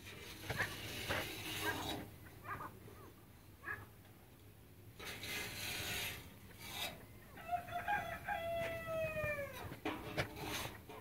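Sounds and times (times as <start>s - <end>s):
rustling scraping noise: 0.0s - 2.7s, 5.0s - 11.0s
rooster crowing: 7.4s - 9.7s.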